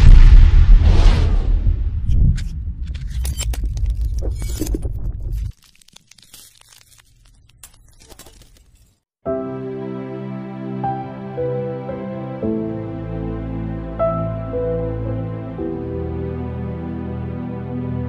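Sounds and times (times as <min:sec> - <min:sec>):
low boom rumble: 0:00.0 - 0:02.9
glitchy crackles and clicks: 0:02.1 - 0:09.0
soft slow music: 0:09.3 - 0:18.0.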